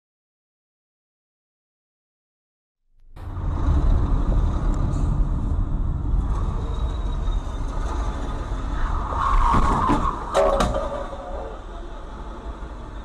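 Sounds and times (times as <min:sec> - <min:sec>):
car engine and tyre rumble: 0:03.0 - 0:13.0.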